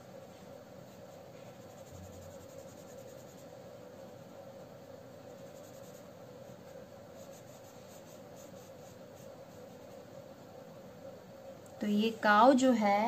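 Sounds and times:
low steady hum: 0:00.0 - 0:13.0
felt-tip pen scratching on paper: 0:00.8 - 0:03.6, 0:05.2 - 0:10.1.

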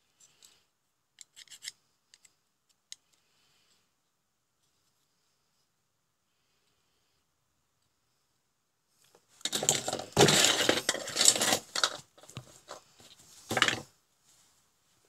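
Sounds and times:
hard parts clattering on workbench: 0:09.4 - 0:12.8, 0:13.4 - 0:13.9.

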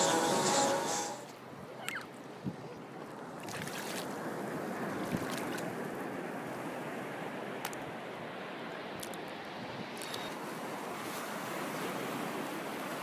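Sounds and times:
surf washing over sand: 0:02.8 - 0:13.0.

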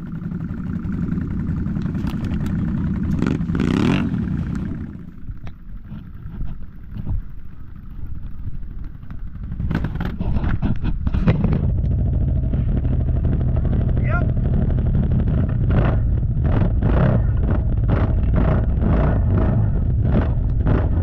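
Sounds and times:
atv engine running: 0:00.0 - 0:21.0
knocks and clatter: 0:08.8 - 0:21.0.

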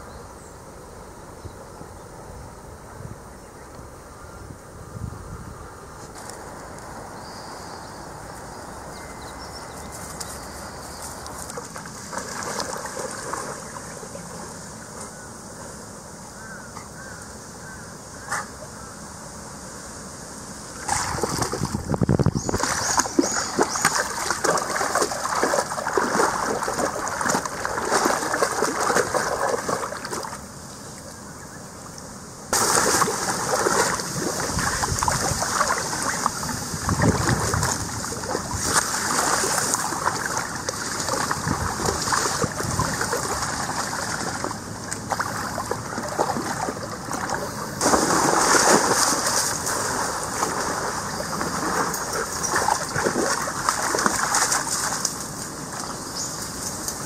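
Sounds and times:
dog splashing in water: 0:11.2 - 0:14.2, 0:20.8 - 0:30.4, 0:32.6 - 0:55.9
running water: 0:20.7 - 0:31.1, 0:32.6 - 0:57.0.

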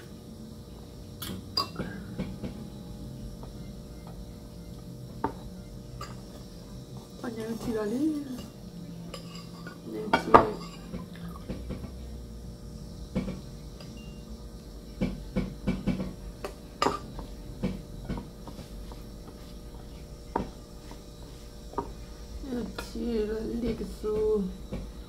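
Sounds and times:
metal spoons clinking on ceramic bowls: 0:08.3 - 0:11.0.

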